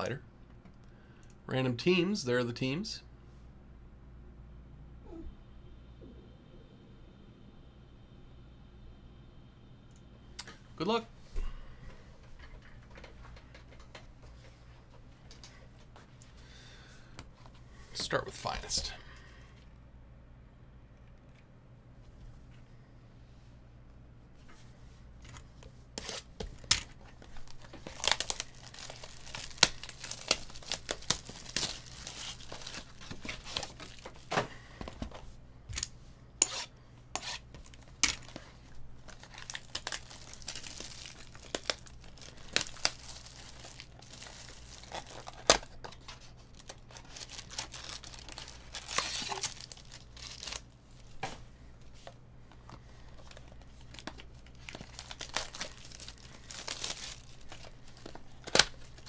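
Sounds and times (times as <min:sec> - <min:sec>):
shrink wrap tearing and crinkling: 0:26.0 - 0:34.4, 0:37.2 - 0:51.2, 0:53.0 - 0:59.0
knife slitting plastic: 0:44.8 - 0:50.6.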